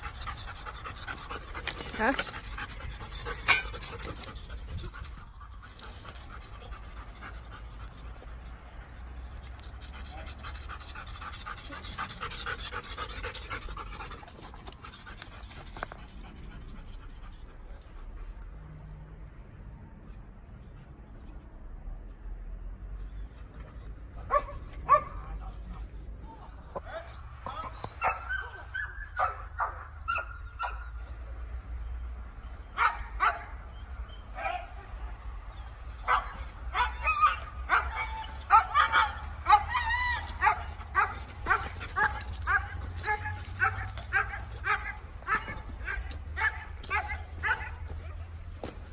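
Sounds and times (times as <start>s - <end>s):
dog panting: 0.0s - 18.5s
dog yipping and whining: 27.7s - 29.4s.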